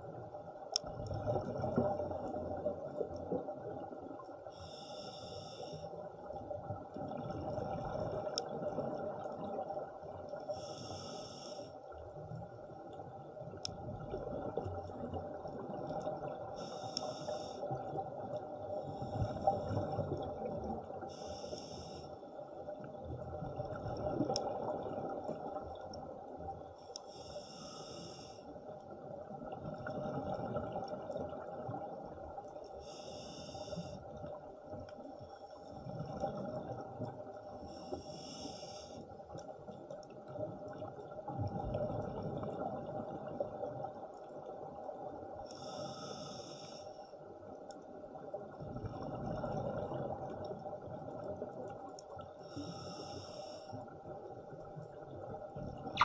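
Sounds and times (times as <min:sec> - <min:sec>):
underwater rumble: 0:00.0 - 0:46.4
diver breathing through regulator: 0:04.5 - 0:06.0, 0:10.5 - 0:11.8, 0:16.6 - 0:17.7, 0:21.1 - 0:22.2, 0:27.0 - 0:28.5, 0:32.8 - 0:34.0, 0:37.7 - 0:39.1, 0:45.5 - 0:47.1, 0:52.5 - 0:53.8.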